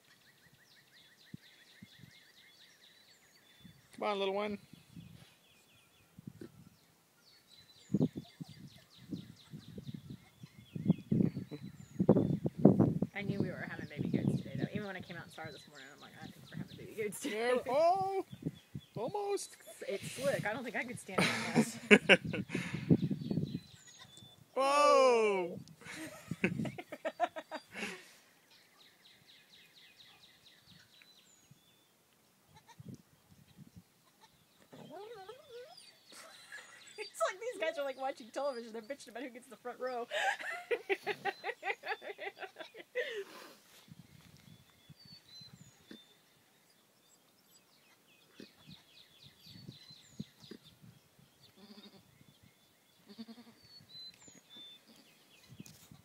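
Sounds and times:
faint goat calls: 0:51.5 - 0:52.1, 0:53.0 - 0:53.7
goats bleating faintly: 0:53.1 - 0:53.6.

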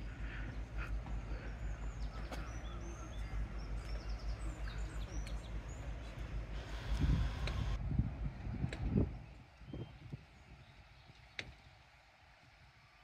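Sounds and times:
small birds chirping: 0:00.0 - 0:06.8
steady low rumble: 0:00.0 - 0:12.5.

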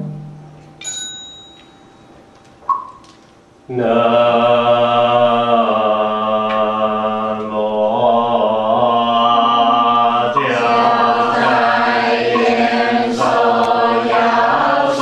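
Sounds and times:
ritual bell ringing: 0:00.7 - 0:02.3
congregation chanting in unison: 0:03.7 - 0:15.0.

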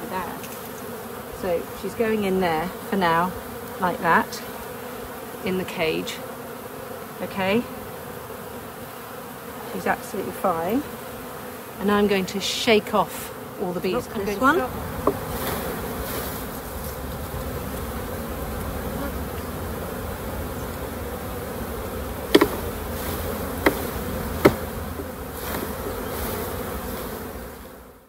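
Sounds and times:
honeybees buzzing: 0:00.0 - 0:28.0
frames knocking: 0:22.3 - 0:22.8, 0:23.6 - 0:25.2.

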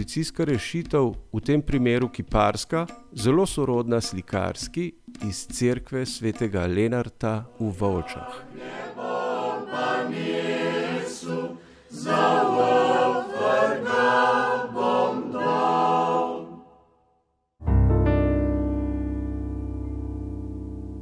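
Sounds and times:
choir singing: 0:07.5 - 0:16.9
piano chord ringing: 0:17.6 - 0:21.0.

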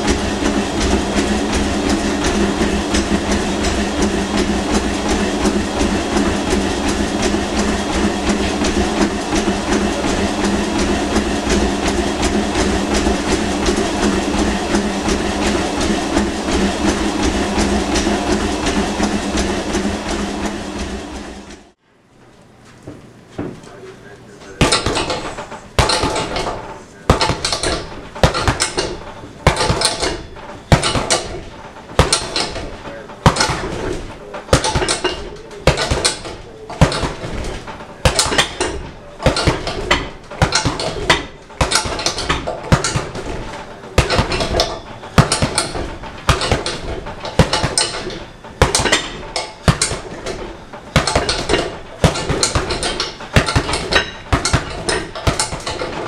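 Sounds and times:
punches hitting heavy bag: 0:24.6 - 0:31.4, 0:32.0 - 0:55.9.

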